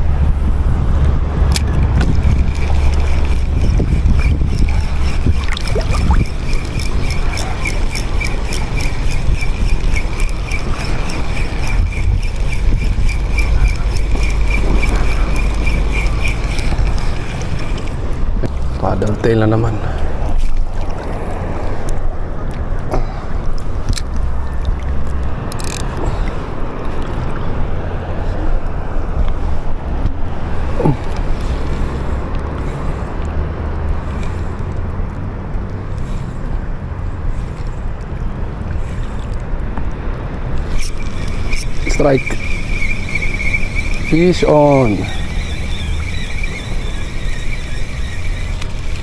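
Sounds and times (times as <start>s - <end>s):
wind buffeting microphone: 0.0s - 49.0s
fishing reel ticking: 1.5s - 18.1s, 25.5s - 26.0s, 40.6s - 49.0s
sea water lapping: 1.6s - 25.2s, 40.6s - 49.0s.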